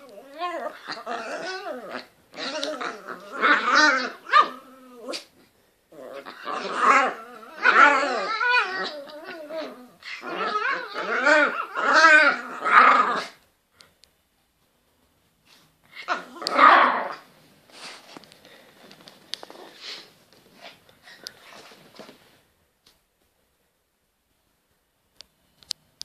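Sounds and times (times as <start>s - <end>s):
small dogs growling: 0.0s - 13.4s, 15.9s - 17.3s.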